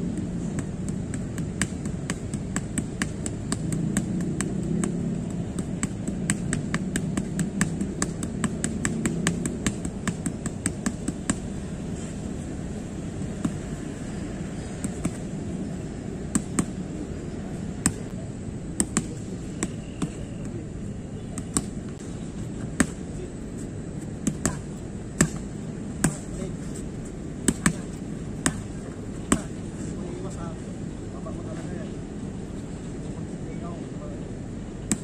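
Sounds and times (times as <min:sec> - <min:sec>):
boxing gloves slapping mitts: 0:00.1 - 0:11.5, 0:24.0 - 0:26.8, 0:27.4 - 0:29.6.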